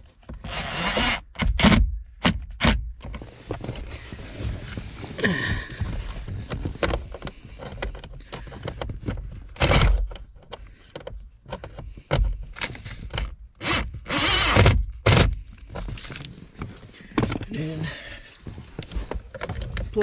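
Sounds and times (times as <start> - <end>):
cordless drill driving screws: 0.4 - 1.8, 13.6 - 15.4.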